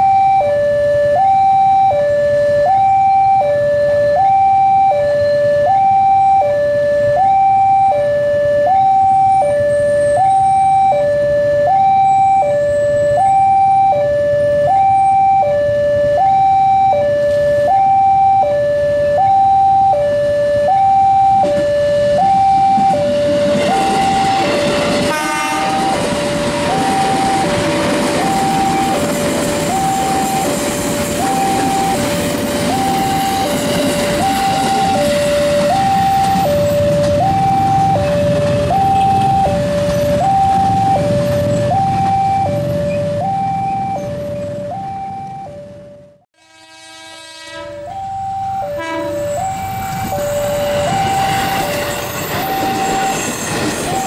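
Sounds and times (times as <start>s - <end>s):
level crossing two-tone alarm: 0.0s - 46.2s, 47.3s - 54.0s
electric train passing: 5.0s - 54.0s
train clatter: 22.7s - 43.0s, 49.6s - 54.0s.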